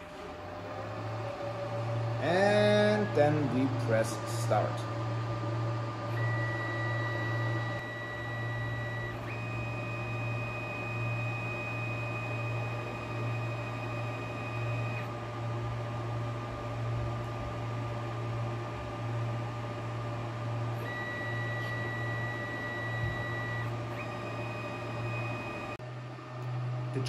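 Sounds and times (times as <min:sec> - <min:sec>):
thin high whine: 0:00.0 - 0:15.2, 0:20.7 - 0:25.8
machine hum with pulsing drone: 0:00.0 - 0:27.0.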